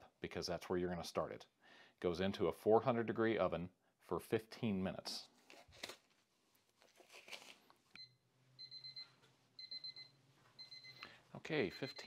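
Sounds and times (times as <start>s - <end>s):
kitchen timer beeping: 8.0s - 11.1s, 11.7s - 12.0s.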